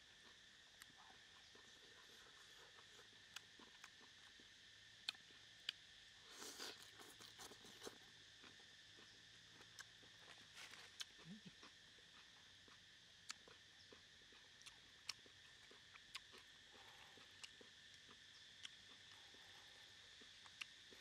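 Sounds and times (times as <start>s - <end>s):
high insect drone: 0.0s - 21.0s.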